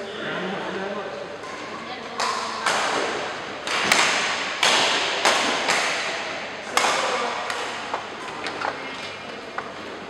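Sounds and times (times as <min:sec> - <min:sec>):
rackets hitting shuttlecock: 0:01.4 - 0:08.6.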